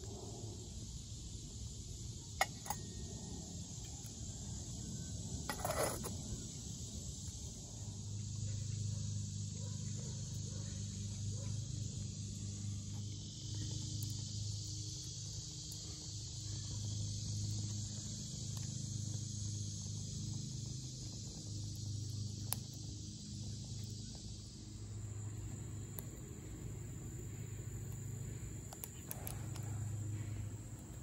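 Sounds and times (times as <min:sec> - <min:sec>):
insect buzzing: 0:12.2 - 0:31.0
low hum: 0:16.2 - 0:31.0.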